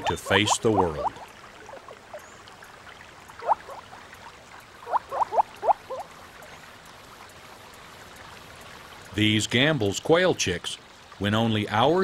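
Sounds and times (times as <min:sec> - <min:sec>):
low steady hiss: 0:00.0 - 0:12.0
quail calling: 0:03.4 - 0:03.8, 0:04.8 - 0:06.1.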